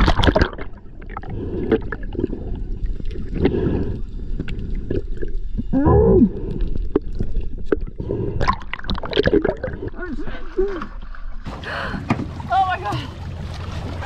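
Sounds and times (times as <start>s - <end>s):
underwater water rush: 0.0s - 14.0s.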